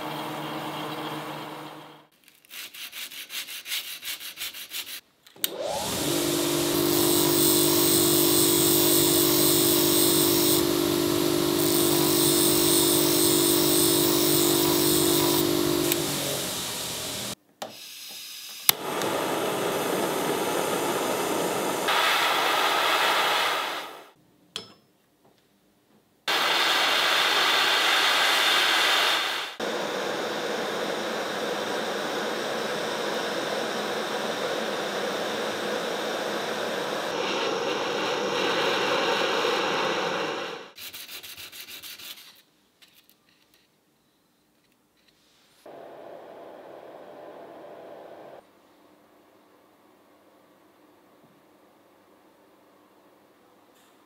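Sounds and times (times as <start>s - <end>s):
bench grinder humming: 5.6s - 17.4s, 26.3s - 40.8s
butane torch hissing: 18.8s - 24.2s, 26.3s - 40.8s, 45.6s - 48.4s.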